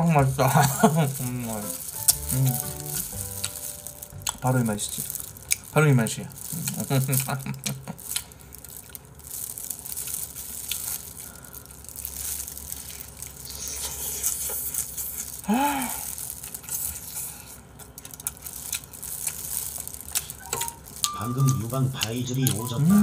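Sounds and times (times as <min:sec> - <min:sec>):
crunchy chewing: 0:00.3 - 0:23.0
person humming mm: 0:02.1 - 0:03.0, 0:15.5 - 0:16.1, 0:22.5 - 0:23.0.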